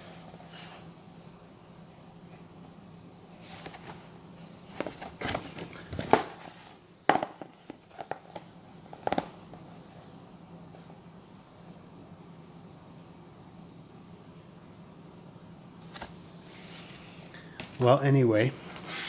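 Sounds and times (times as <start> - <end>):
paper rustling and crinkling: 4.7 - 6.8.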